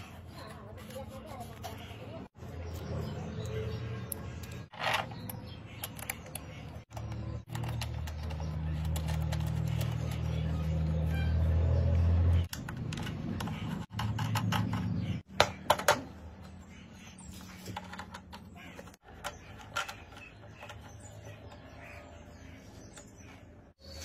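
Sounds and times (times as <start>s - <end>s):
plastic parts clicking and tapping: 17.7s - 21.6s.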